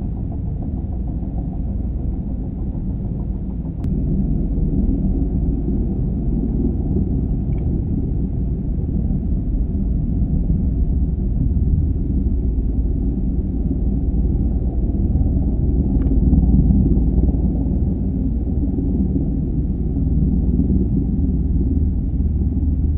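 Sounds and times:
helicopter hovering: 10.6s - 22.9s.

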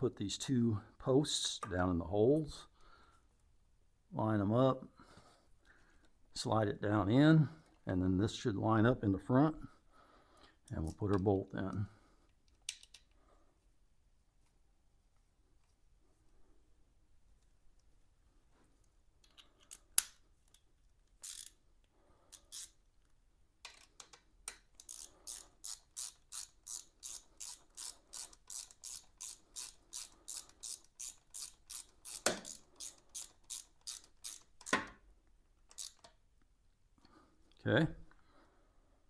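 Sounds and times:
hand ratchet clicking: 21.2s - 21.6s, 22.3s - 22.8s, 23.6s - 34.8s, 35.6s - 36.2s.

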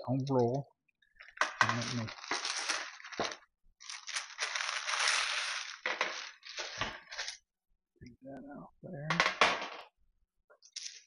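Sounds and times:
parchment paper crinkling and scraping: 1.2s - 7.4s.

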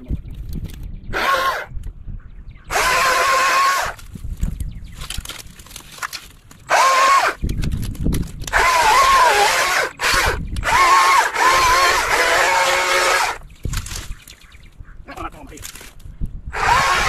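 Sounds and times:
electric chainsaw whining: 1.2s - 1.7s, 2.7s - 4.0s, 6.7s - 7.4s, 8.4s - 13.4s, 16.5s - 17.0s.

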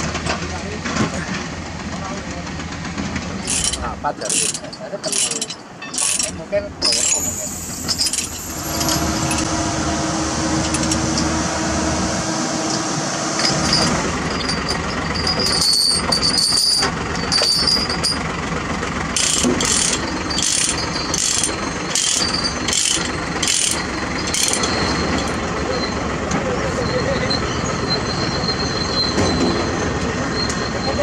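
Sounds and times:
steady mechanical noise: 0.0s - 31.0s
ratchet clicks: 3.4s - 9.5s, 19.2s - 24.8s.

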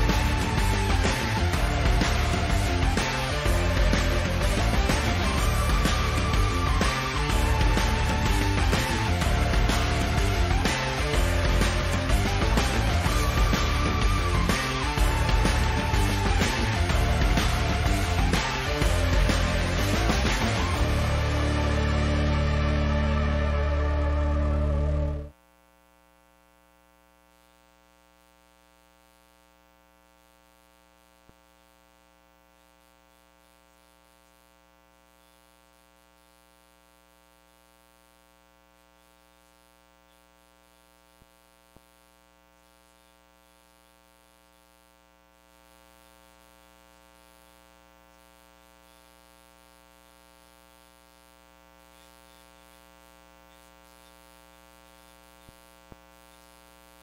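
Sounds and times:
faint electrical hum and buzz: 25.3s - 57.0s.

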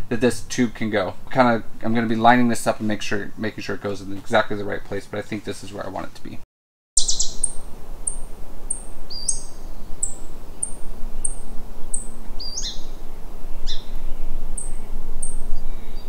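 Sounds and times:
steady background hiss: 0.0s - 6.4s, 7.0s - 16.0s
thin high bird chirps: 7.0s - 13.0s, 13.6s - 16.0s
lower down-slurred bird calls: 7.0s - 16.0s.

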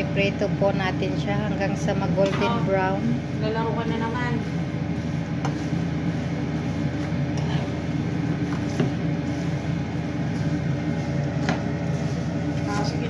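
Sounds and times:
noodles frying in oil: 0.0s - 13.0s
steady low hum: 0.0s - 13.0s
utensil tapping and scraping pan: 4.4s - 13.0s.

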